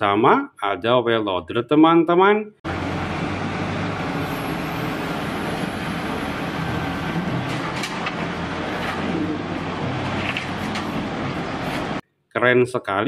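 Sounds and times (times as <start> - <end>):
wheel loader diesel engine: 2.7 - 12.0.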